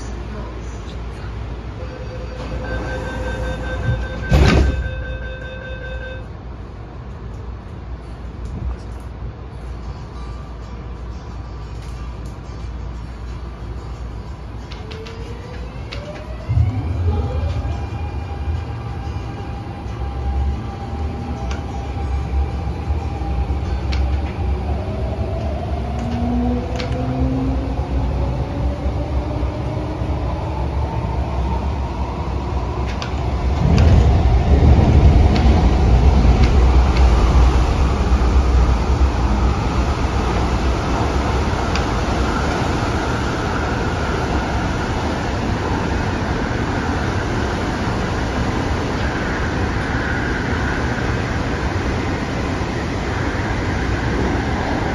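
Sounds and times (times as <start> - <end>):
train running gear rumble: 0.0 - 54.9.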